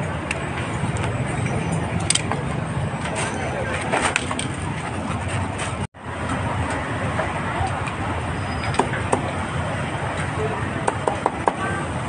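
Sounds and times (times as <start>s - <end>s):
steady traffic noise: 0.0s - 12.0s
clicks and clatter: 0.2s - 6.4s.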